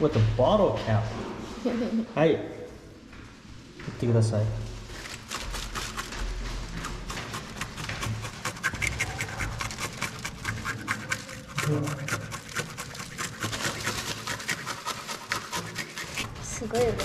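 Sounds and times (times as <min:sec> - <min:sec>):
bottle cap scraping fish scales: 0:06.7 - 0:17.0.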